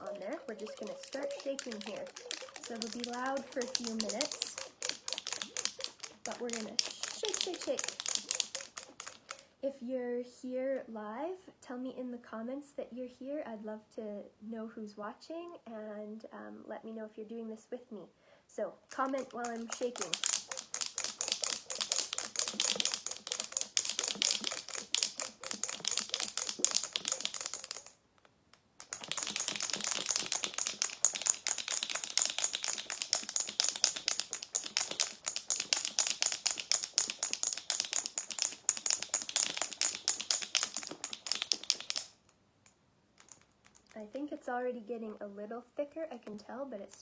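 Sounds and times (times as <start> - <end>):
marbles rattling in a jar: 0.0 - 9.4, 18.9 - 28.0, 28.8 - 42.3, 43.2 - 44.4.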